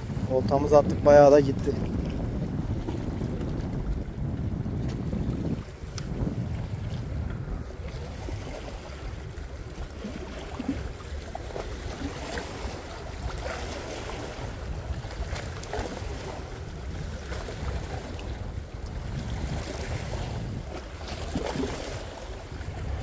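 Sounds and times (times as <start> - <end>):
wind rumbling on microphone: 0.0 - 23.0
waves washing against rocks: 5.2 - 23.0.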